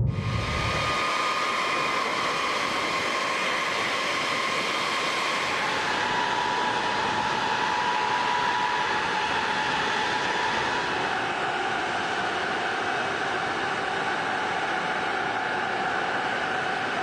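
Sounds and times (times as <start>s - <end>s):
jet engines idling: 0.0s - 1.0s.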